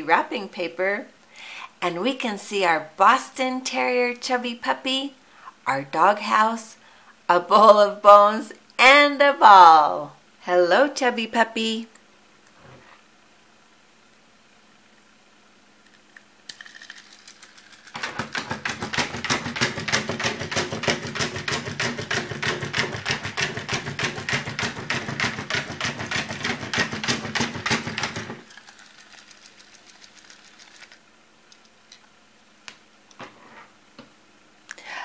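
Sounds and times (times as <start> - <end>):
toy motor with clacking legs: 16.5 - 31.0.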